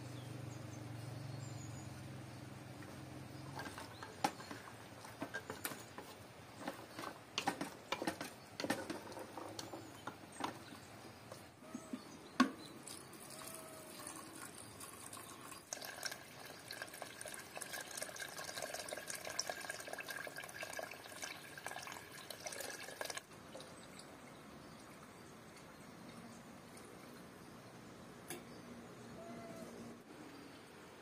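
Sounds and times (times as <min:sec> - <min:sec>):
water pouring into a pot: 0:12.8 - 0:23.8.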